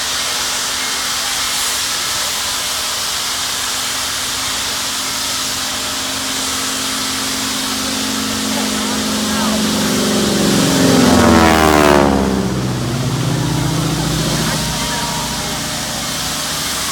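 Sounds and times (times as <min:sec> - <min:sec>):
steam locomotive venting steam: 0:00.0 - 0:11.4, 0:12.7 - 0:16.9
faint steady hum: 0:03.8 - 0:16.9.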